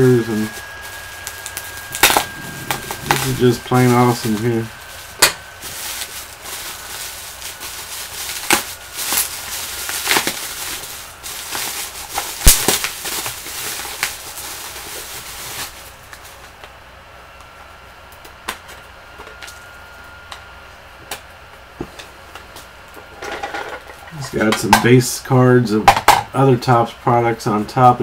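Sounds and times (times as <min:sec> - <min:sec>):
wrapping crinkling and crackling: 0:00.5 - 0:16.8.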